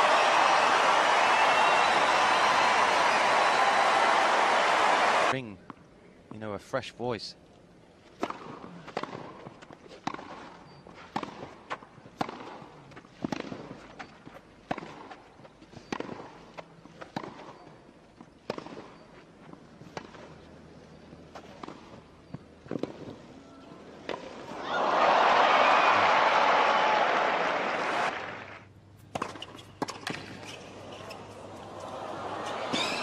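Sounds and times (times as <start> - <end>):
racket hitting tennis ball: 11.1 - 13.9, 14.6 - 15.2.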